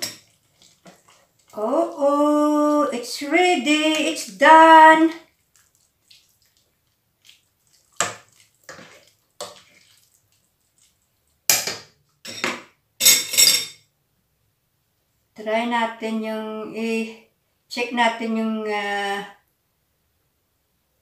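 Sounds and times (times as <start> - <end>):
utensil scraping metal pot: 0.0 - 4.2, 7.7 - 10.0.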